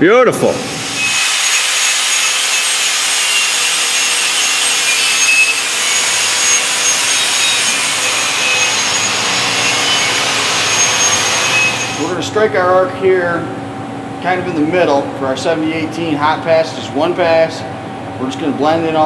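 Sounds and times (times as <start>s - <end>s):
grinder grinding steel: 0.7s - 12.1s.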